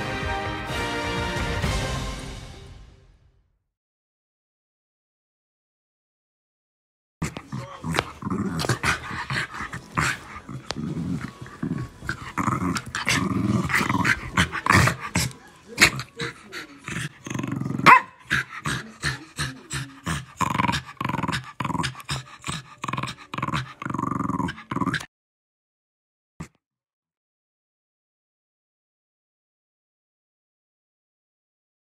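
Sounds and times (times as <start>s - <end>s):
dogs growling and snarling: 7.2s - 25.1s
dog yipping: 17.8s - 18.2s.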